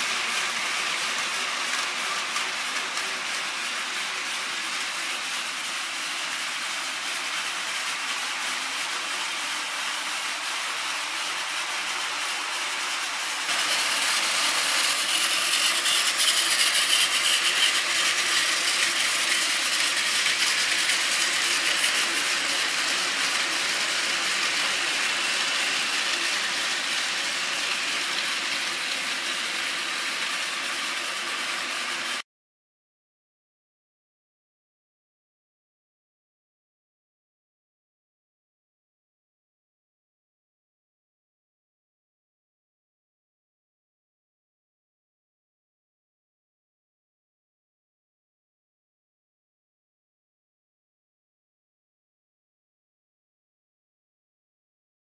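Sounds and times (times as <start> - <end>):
plastic wheels clattering on rails: 0.0 - 32.2
toy train motor whirring: 0.0 - 32.2.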